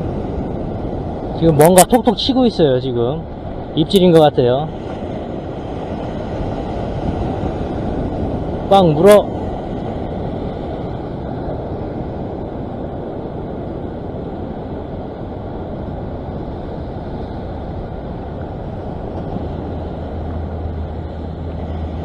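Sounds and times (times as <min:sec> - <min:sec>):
surf breaking over rocks: 0:00.0 - 0:22.0
wind buffeting the microphone: 0:00.0 - 0:22.0.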